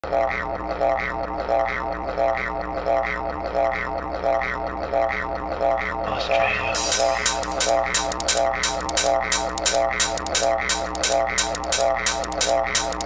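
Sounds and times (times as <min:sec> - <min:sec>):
dance music with low drone: 0:06.0 - 0:13.0.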